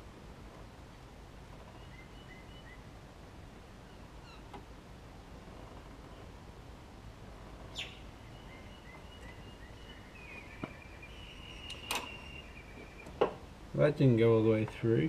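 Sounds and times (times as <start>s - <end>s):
quiet background hum: 0.0s - 15.0s
faint high whistling tones: 7.8s - 13.3s.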